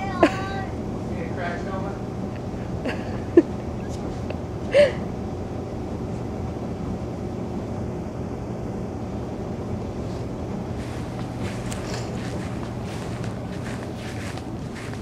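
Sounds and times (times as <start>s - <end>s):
crackling over dry grass: 10.8s - 15.0s.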